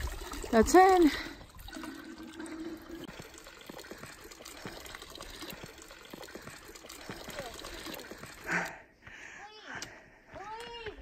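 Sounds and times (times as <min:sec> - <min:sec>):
water filling plastic bottle: 0:00.0 - 0:08.7
water splashing into trough: 0:00.0 - 0:08.7.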